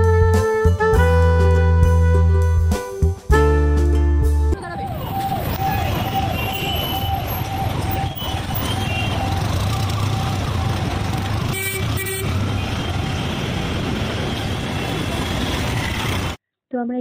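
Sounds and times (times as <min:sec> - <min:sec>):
engine and road rumble: 0:00.0 - 0:16.4
vehicle horn tooting: 0:11.5 - 0:12.8.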